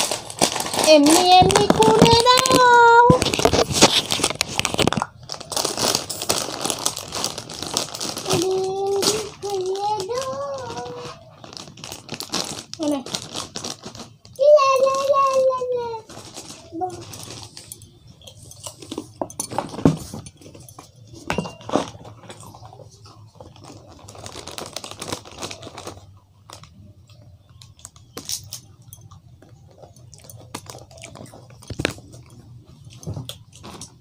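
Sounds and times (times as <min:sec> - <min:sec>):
plastic packet crinkling: 0:00.0 - 0:34.0
crunchy snack chewing: 0:27.6 - 0:34.0.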